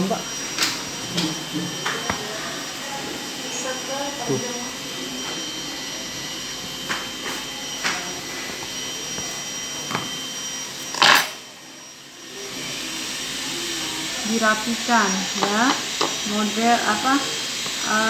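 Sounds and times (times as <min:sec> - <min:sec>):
machine hum with hiss: 0:00.0 - 0:18.0.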